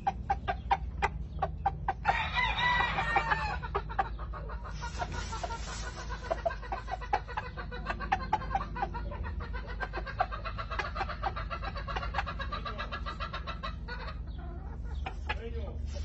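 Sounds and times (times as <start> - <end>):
roosters clucking: 0.0 - 16.0
rustling in straw: 4.7 - 7.1, 15.8 - 16.0.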